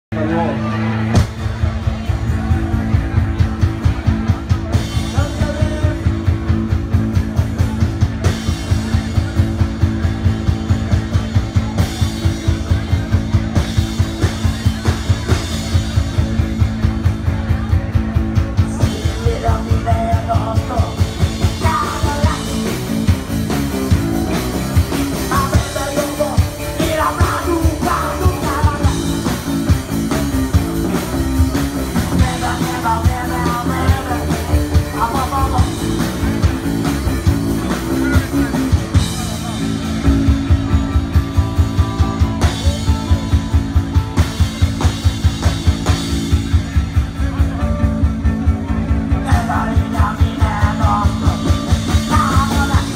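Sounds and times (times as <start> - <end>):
live rock band playing: 0.0 - 52.9
electric guitars: 0.1 - 52.9
fast drum beat: 1.1 - 52.9
person singing: 18.6 - 23.1, 24.0 - 29.6, 31.9 - 36.5, 40.7 - 44.4, 47.3 - 52.9.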